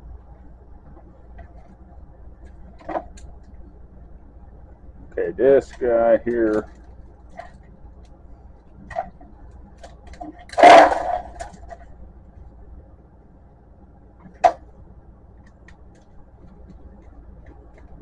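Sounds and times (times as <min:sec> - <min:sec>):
hard plastic clatter: 0:09.8 - 0:11.9.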